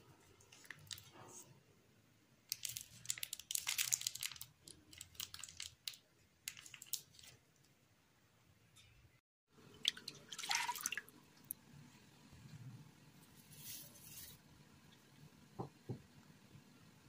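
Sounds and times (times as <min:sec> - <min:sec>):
bread roll crackling: 0:02.5 - 0:07.4.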